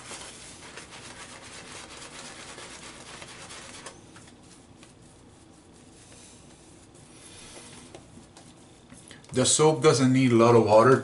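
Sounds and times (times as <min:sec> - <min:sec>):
shaving brush scrubbing lather: 0:00.0 - 0:03.9.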